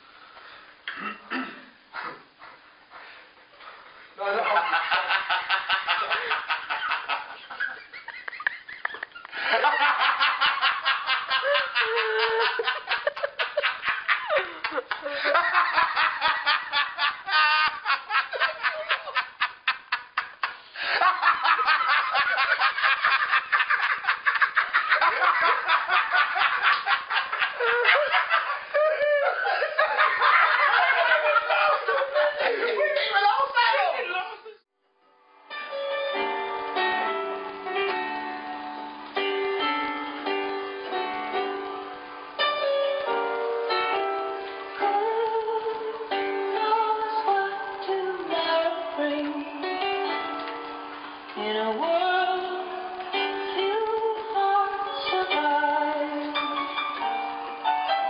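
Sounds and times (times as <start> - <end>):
person laughing heartily: 4.4 - 33.3.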